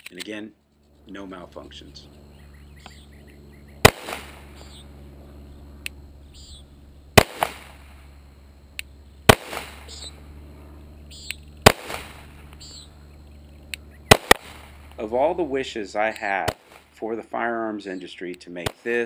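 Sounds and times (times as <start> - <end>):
pistol shots with echo: 3.8 - 4.6, 7.2 - 7.9, 9.3 - 10.1, 11.6 - 12.4, 14.1 - 14.9, 18.6 - 19.0.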